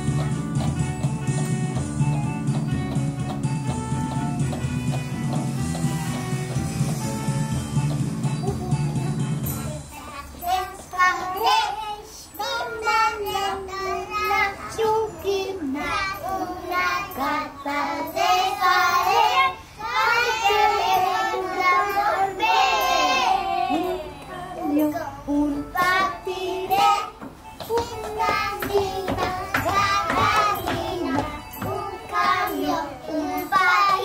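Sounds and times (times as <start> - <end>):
children singing together: 8.4 - 34.0.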